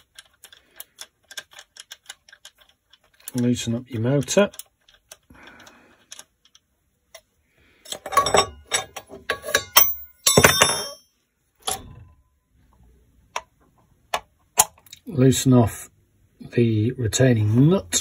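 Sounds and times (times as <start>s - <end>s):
spanner clinking on metal: 7.9s - 11.9s.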